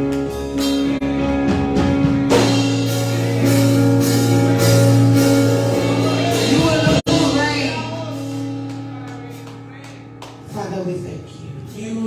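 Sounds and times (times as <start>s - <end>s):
drum beats: 0.0s - 11.1s
sustained band chords: 0.0s - 12.0s.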